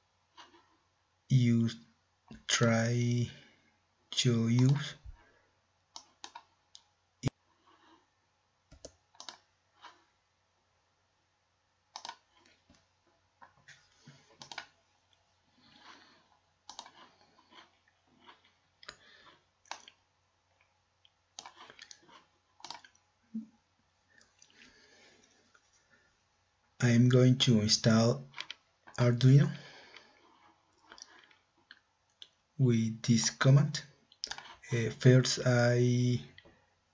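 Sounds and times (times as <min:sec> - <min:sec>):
computer mouse clicks: 0:04.5 - 0:04.8, 0:05.9 - 0:07.4, 0:08.7 - 0:10.0, 0:11.9 - 0:12.8, 0:13.4 - 0:14.8, 0:16.6 - 0:17.1, 0:19.7 - 0:20.0, 0:21.4 - 0:22.0, 0:22.6 - 0:23.0.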